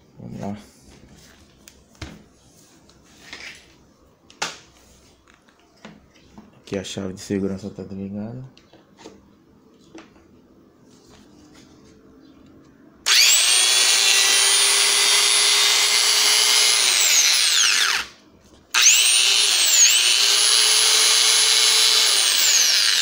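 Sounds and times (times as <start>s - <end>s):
angle grinder whining: 13.0s - 23.0s.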